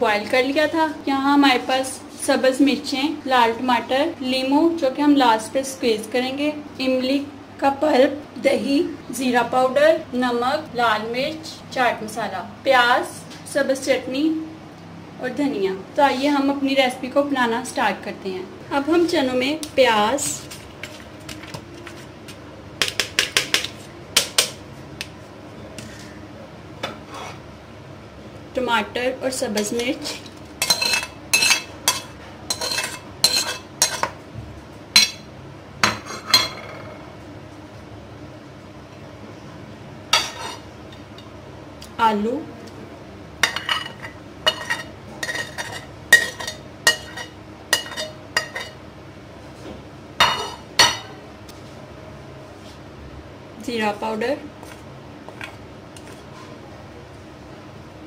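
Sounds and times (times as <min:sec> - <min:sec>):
spoon scraping porcelain plate: 0:27.0 - 0:27.4, 0:29.6 - 0:34.2, 0:40.2 - 0:40.7, 0:43.6 - 0:48.8.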